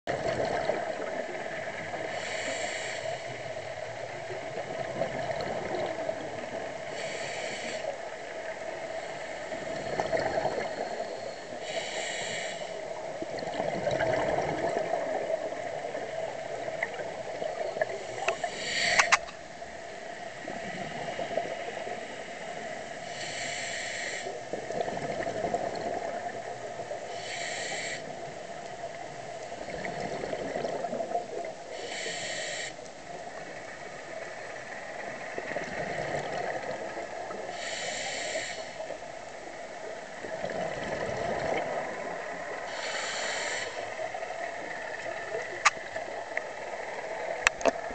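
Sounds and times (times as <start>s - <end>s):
regulator breathing hiss: 2.0s - 3.6s, 6.8s - 8.2s, 9.0s - 13.0s, 18.0s - 19.4s, 20.4s - 24.4s, 27.0s - 28.4s, 31.7s - 32.8s, 37.5s - 39.0s, 42.6s - 45.6s
bubbling underwater: 13.3s - 15.6s, 29.7s - 31.2s, 40.4s - 42.2s
sharp click: 18.9s - 19.4s.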